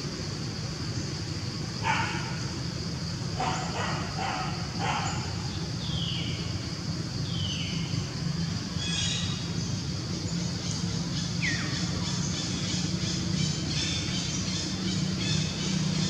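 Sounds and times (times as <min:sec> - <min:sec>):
steady high hiss: 0:00.0 - 0:16.0
animal barks: 0:03.4 - 0:05.4.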